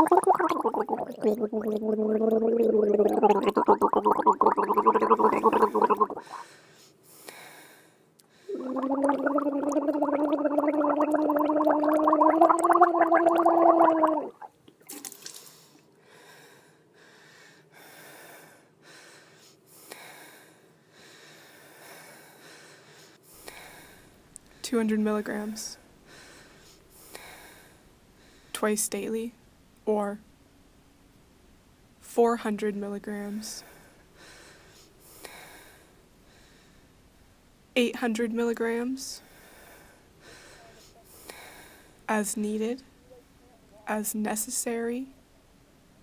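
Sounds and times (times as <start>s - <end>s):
person gargling: 0.0s - 6.4s, 8.5s - 14.5s.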